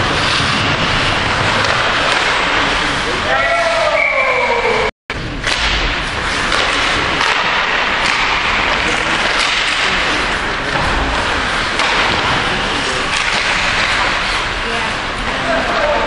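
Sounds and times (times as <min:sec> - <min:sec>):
indistinct voices: 0:06.3 - 0:16.0.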